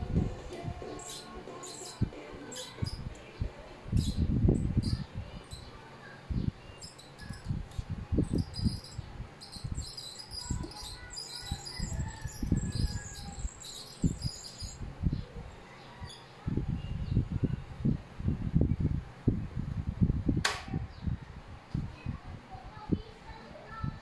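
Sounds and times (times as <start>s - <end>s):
high chirping sounds: 0.5s - 15.3s.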